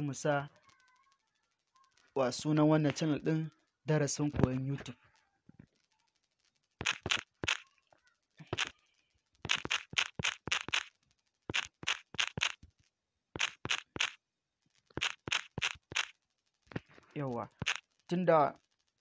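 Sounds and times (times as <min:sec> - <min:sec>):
phone keyboard typing clicks: 0:06.8 - 0:07.7, 0:08.5 - 0:08.8, 0:09.4 - 0:12.6, 0:13.4 - 0:14.2, 0:14.9 - 0:16.2, 0:17.5 - 0:17.8.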